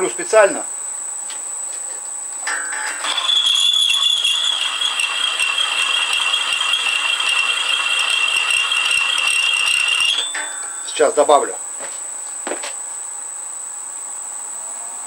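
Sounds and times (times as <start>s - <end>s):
high steady squeal: 2.4s - 11.6s
drill chattering into steel: 2.5s - 11.0s.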